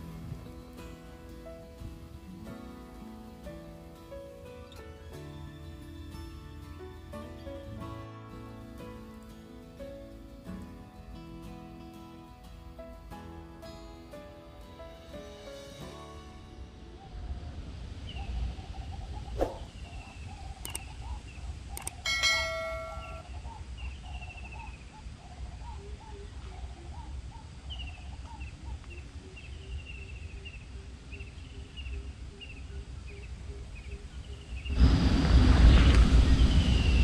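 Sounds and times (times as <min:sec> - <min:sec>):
birds chirping: 0:16.4 - 0:37.0
sharp clicks: 0:20.6 - 0:20.9, 0:21.7 - 0:22.0
bell-like ding: 0:22.1 - 0:23.3
low rumble: 0:34.6 - 0:37.0.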